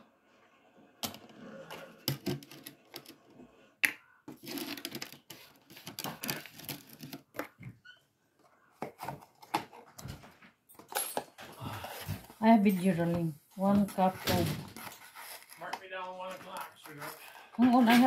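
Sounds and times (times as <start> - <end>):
cardboard box being opened: 14.2 - 15.7.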